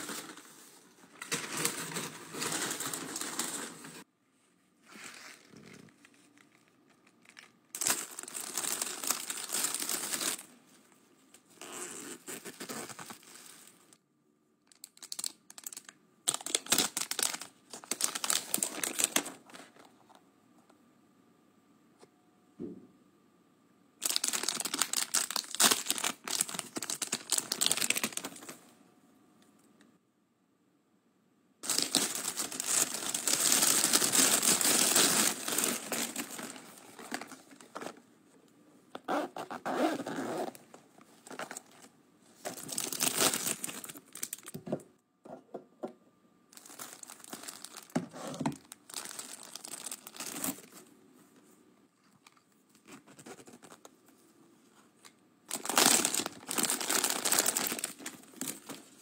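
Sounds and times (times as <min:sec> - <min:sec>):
plastic packaging crinkling: 0:00.0 - 0:04.0, 0:04.9 - 0:10.6, 0:14.7 - 0:19.8, 0:24.0 - 0:28.6, 0:31.6 - 0:38.0, 0:39.0 - 0:44.7, 0:46.5 - 0:50.8, 0:55.5 - 0:59.0.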